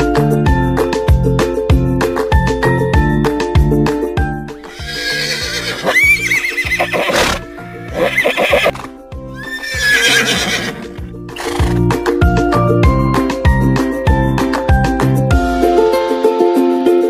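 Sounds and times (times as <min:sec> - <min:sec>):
upbeat background music: 0:00.0 - 0:17.0
horse neighing: 0:04.6 - 0:11.8.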